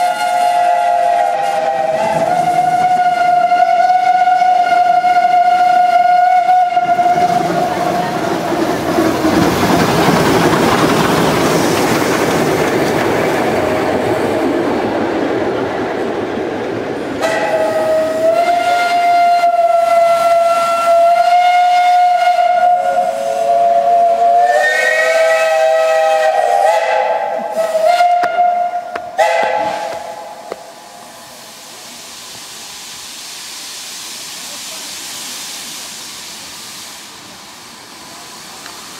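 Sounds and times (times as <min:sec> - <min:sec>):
steam whistle blast: 0:00.0 - 0:07.4, 0:17.2 - 0:30.7
hiss of steam: 0:00.0 - 0:15.3, 0:17.0 - 0:38.9
steam locomotive rumble and clatter: 0:00.0 - 0:38.9.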